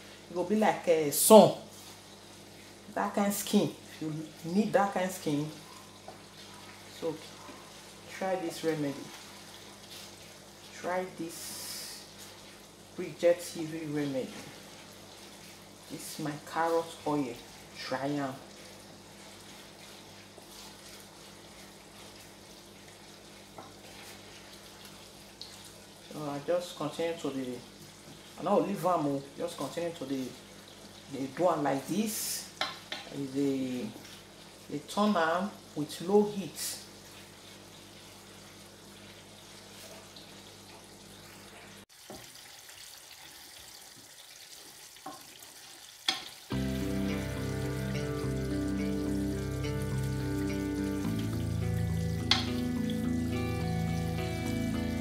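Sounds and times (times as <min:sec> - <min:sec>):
carrots sizzling in a pan: 0:00.0 - 0:55.0
wooden spoon stirring: 0:18.6 - 0:22.4
background music: 0:46.5 - 0:55.0
wooden spoon knocking on pan: 0:52.3 - 0:52.6.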